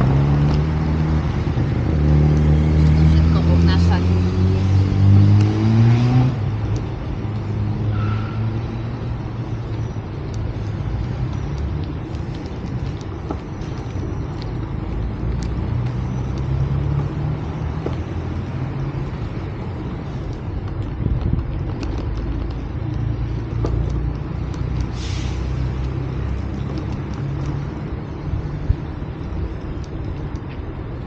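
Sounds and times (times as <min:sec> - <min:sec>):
road traffic rumbling: 0:00.0 - 0:31.0
short hiss: 0:24.9 - 0:25.6.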